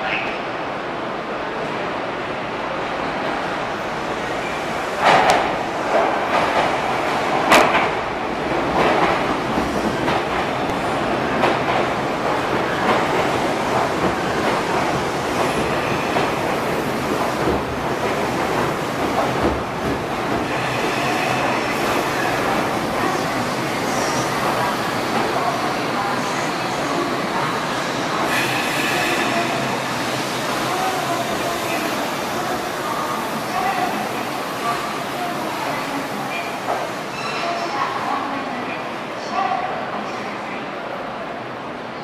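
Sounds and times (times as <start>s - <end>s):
train wheel rumble echoing: 2.6s - 37.0s
faint brake squeal: 37.1s - 37.6s.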